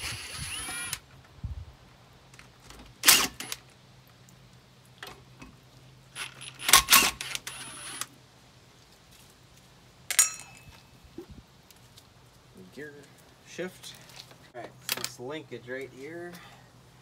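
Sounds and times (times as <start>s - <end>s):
cordless driver: 0.0s - 1.0s, 6.2s - 8.1s.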